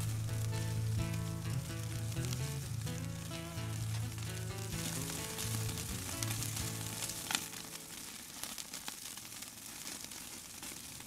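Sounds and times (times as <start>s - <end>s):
background music: 0.0s - 7.9s
patties sizzling on a grill: 0.0s - 11.0s.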